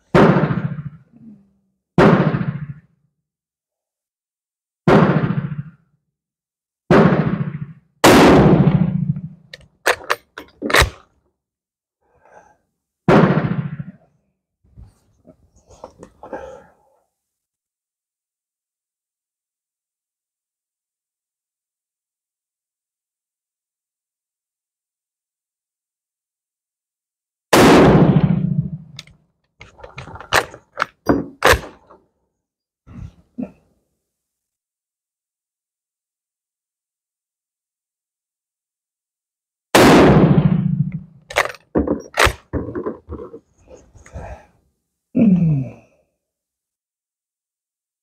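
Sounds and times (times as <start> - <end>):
rifle shots: 0.1 - 1.0, 2.0 - 2.8, 4.9 - 5.8, 6.9 - 9.3, 13.1 - 14.0, 27.5 - 29.1, 30.3 - 31.8, 39.8 - 42.6
rifle shot ringing: 6.9 - 9.2, 27.6 - 29.0, 39.8 - 41.6
rifle bolt metallic clacks: 9.5 - 11.0, 41.3 - 42.5.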